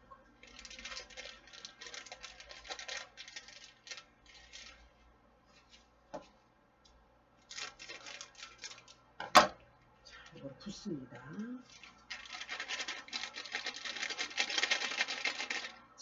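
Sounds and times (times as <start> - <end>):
plastic packet crinkling: 0.4 - 5.0, 7.4 - 9.3, 10.1 - 15.8
scissors snipping packet: 11.4 - 15.7.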